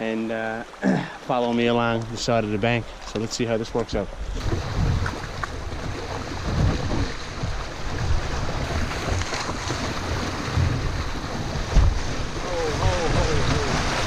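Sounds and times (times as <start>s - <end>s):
river water rushing and splashing: 0.0s - 14.0s
wind buffeting microphone: 3.7s - 14.0s.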